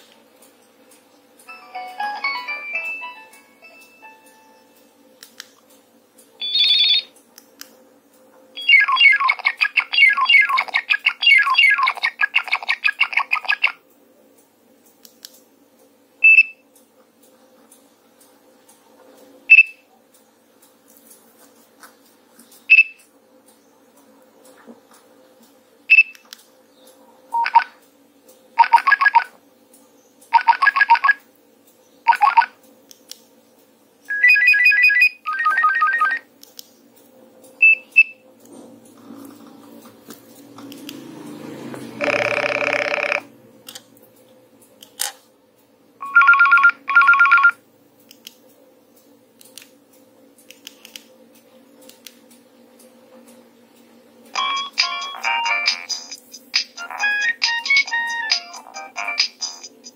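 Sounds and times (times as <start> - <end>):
phone ringtone melody: 1.5 - 4.8, 6.4 - 7.1, 34.1 - 36.2, 42.0 - 43.3, 46.0 - 47.6, 54.4 - 56.0, 56.8 - 59.7.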